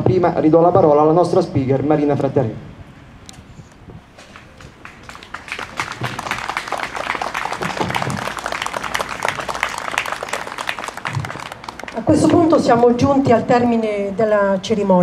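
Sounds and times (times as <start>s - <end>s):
crowd applauding: 4.2s - 12.6s.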